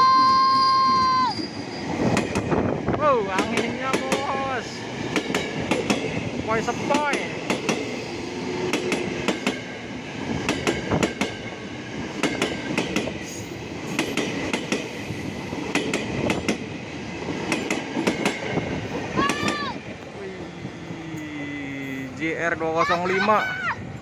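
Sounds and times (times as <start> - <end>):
train passing rumble: 0.0 - 24.0
train wheels clacking on rail joints: 1.4 - 4.4, 5.0 - 19.7.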